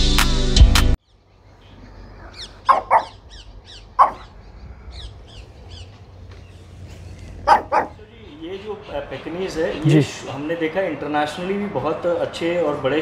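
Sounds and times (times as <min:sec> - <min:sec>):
background music: 0:00.0 - 0:01.0
birds chirping: 0:01.0 - 0:13.0
dog barking: 0:02.2 - 0:03.2, 0:04.0 - 0:04.4, 0:07.4 - 0:08.0.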